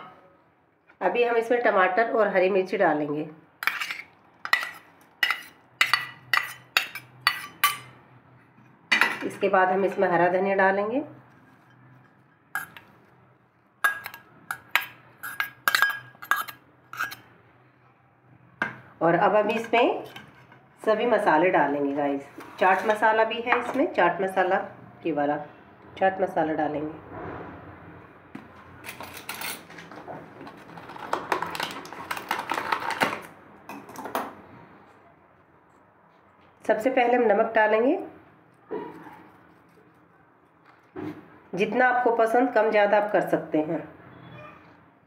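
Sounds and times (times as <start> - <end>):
spoon clinking on steel bowls: 3.6 - 7.9, 12.6 - 12.9, 13.8 - 17.2.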